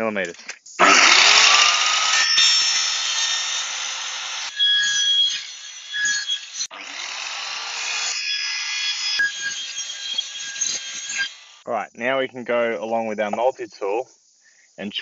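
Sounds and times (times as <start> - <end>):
circular saw cutting plastic: 0.8 - 11.6.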